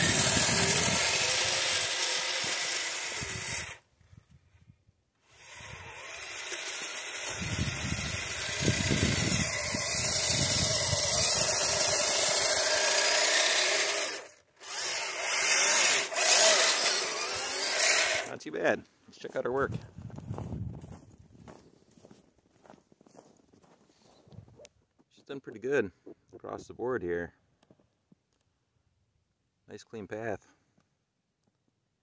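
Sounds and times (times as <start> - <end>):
electric motors whining: 0.0 - 3.8, 5.2 - 18.3.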